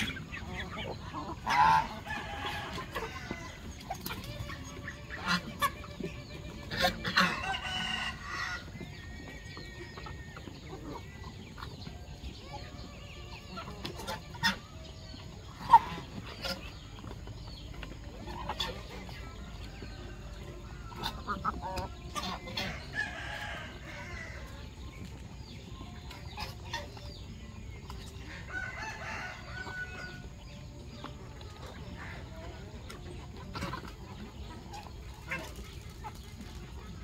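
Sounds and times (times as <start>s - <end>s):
chickens clucking: 0.0s - 37.0s.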